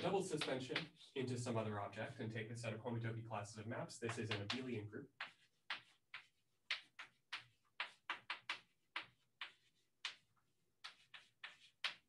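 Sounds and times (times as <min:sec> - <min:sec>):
chalk tapping and scratching: 0:00.0 - 0:01.2, 0:04.0 - 0:12.0.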